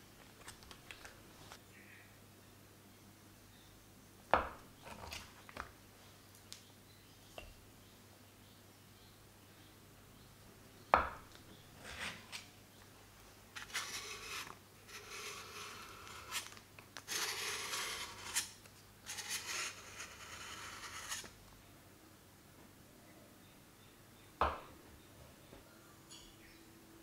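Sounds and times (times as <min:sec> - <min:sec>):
knife scraping butter off paper: 0:13.6 - 0:21.3.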